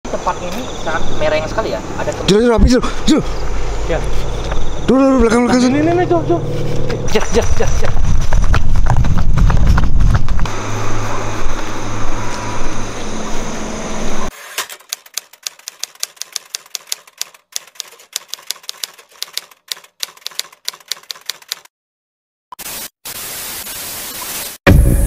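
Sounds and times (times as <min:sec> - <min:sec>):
typewriter key clicks: 0:14.7 - 0:21.7.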